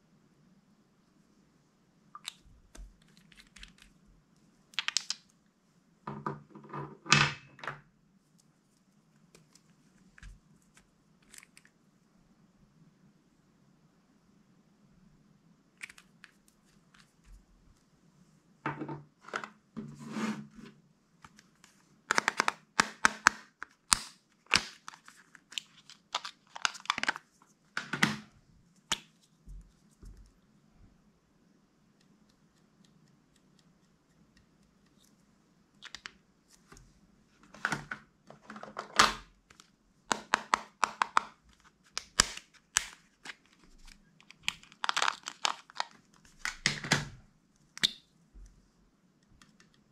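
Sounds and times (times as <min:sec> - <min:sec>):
plastic crinkling: 0:24.4 - 0:27.4, 0:39.5 - 0:46.7.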